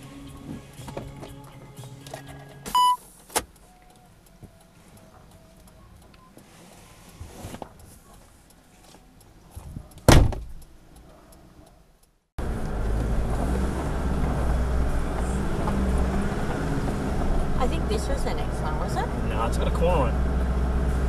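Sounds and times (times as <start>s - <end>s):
loud thump: 10.1s - 10.6s
vehicle engine rumbling: 12.4s - 21.0s.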